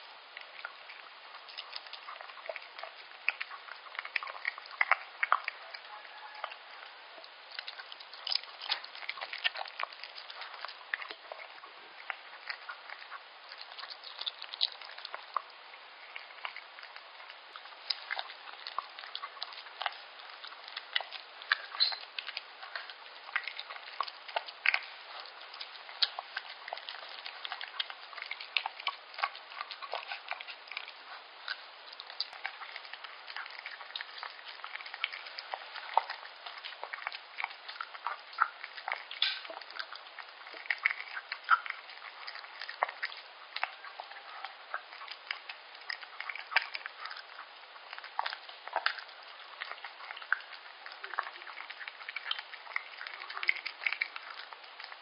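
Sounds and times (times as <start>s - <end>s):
dog chewing and licking: 0.0s - 55.0s.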